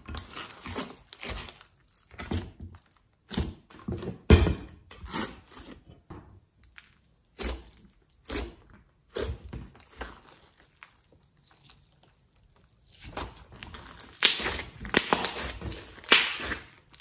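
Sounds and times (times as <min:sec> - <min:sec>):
slime squishing: 0:00.0 - 0:03.7, 0:06.5 - 0:17.0
crackling air pops in slime: 0:14.1 - 0:16.6.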